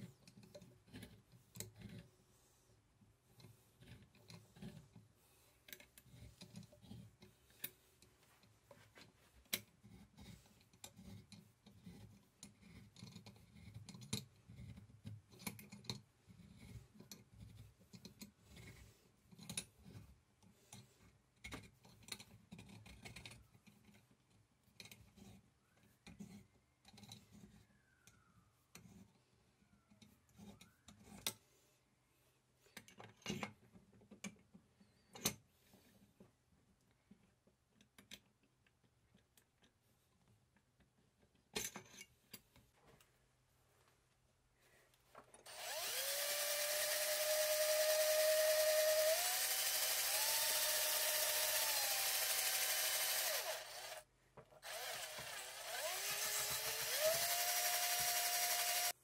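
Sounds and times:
reamer clicking and scraping metal: 45.4 - 54.0, 54.6 - 59.0.

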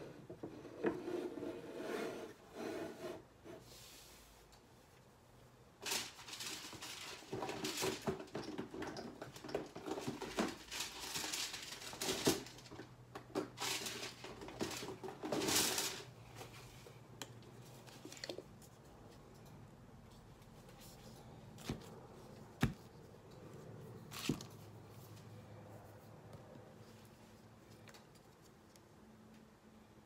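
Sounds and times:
small hard objects clattering: 5.8 - 16.2.

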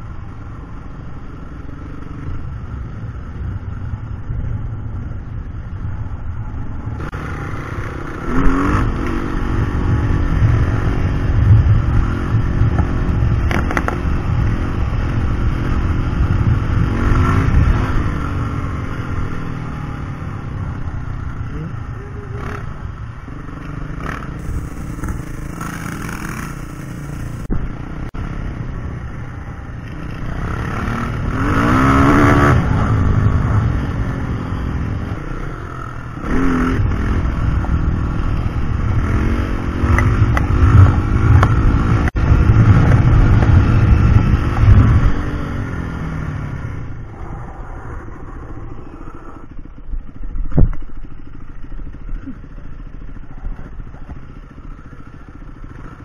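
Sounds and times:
dirt bike engine revving: 7.0 - 20.4, 23.4 - 28.6, 29.9 - 49.5.

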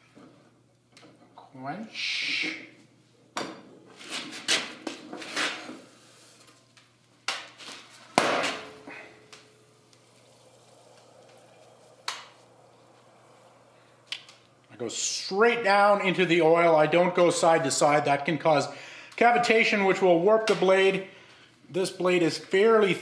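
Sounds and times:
hot blade hissing in oil: 9.6 - 14.6.

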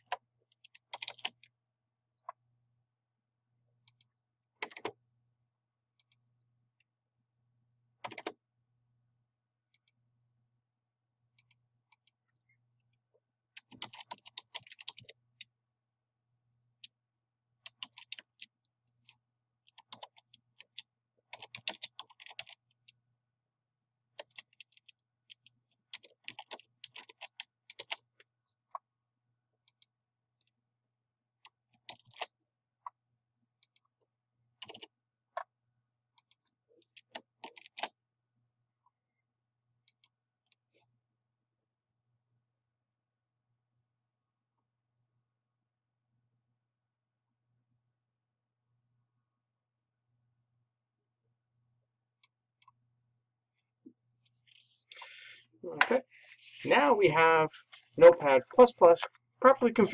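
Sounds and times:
keyboard typing: 0.0 - 1.5, 3.8 - 5.0, 8.0 - 8.4, 13.5 - 15.5, 17.6 - 23.0, 24.1 - 28.9, 31.4 - 32.4, 34.6 - 35.5, 36.2 - 38.0.

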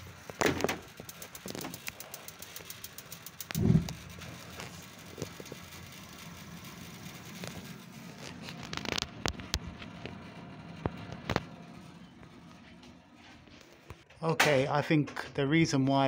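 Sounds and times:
handling clicks and rustles: 0.0 - 10.2
gas burner rushing: 0.0 - 14.1.

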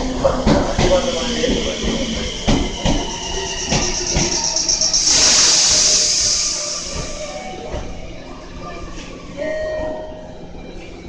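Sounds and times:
hiss of released air: 4.7 - 7.4.

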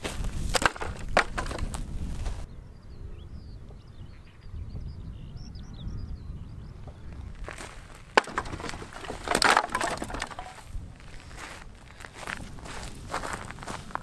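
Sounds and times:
wind rumbling on microphone: 0.0 - 14.0
firewood clattering onto pile: 0.4 - 1.8, 7.5 - 11.5.

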